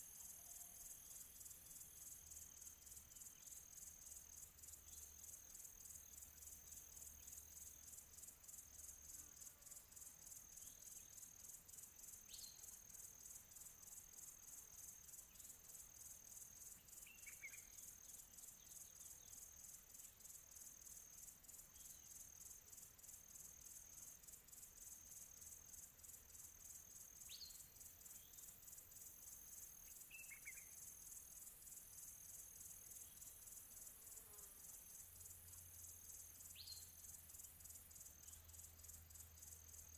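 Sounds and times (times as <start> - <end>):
faint chirps: 12.0 - 13.1, 15.0 - 24.2, 24.8 - 39.9
high-pitched insect chirring: 16.8 - 39.9.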